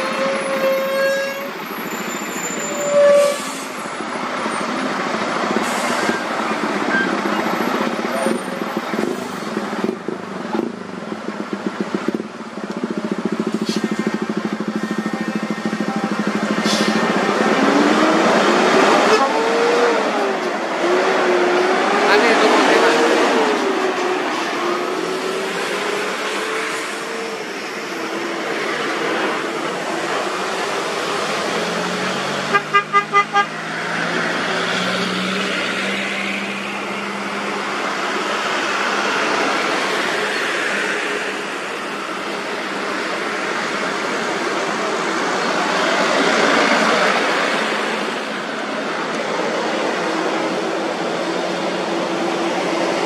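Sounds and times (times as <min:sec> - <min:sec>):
truck diesel engine accelerating: 0:03.8 - 0:53.0
truck horn toots: 0:32.5 - 0:33.5.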